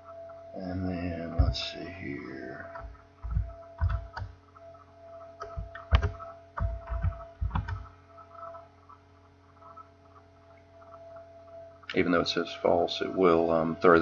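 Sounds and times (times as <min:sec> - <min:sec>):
faint steady hum: 0:00.0 - 0:14.0
computer keyboard keystrokes: 0:02.7 - 0:04.3, 0:05.4 - 0:07.9.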